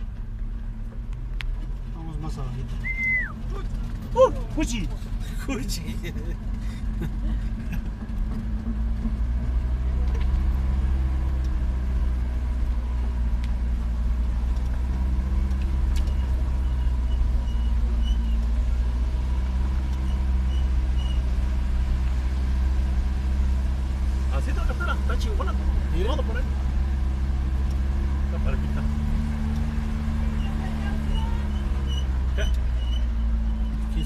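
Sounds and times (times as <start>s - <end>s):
car engine running: 0.0s - 34.0s.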